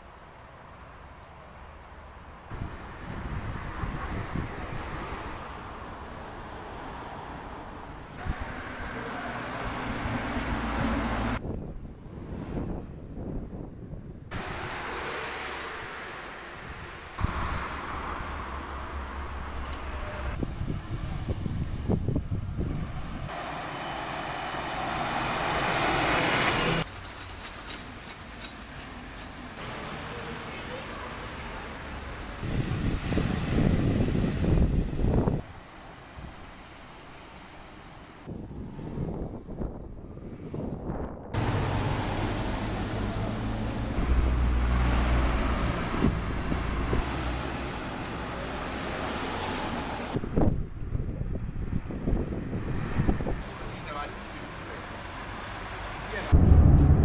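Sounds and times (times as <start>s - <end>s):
street traffic: 0.0s - 57.0s
wind on microphone: 2.5s - 5.3s, 9.9s - 14.8s, 20.3s - 23.3s, 32.4s - 35.5s, 38.3s - 42.1s, 45.4s - 47.1s, 50.1s - 53.5s, 56.3s - 57.0s
bus passing close by: 2.6s - 11.6s, 14.3s - 26.9s, 41.4s - 50.6s, 51.7s - 57.0s
low rumble of vehicle passing: 38.4s - 53.5s, 55.2s - 57.0s.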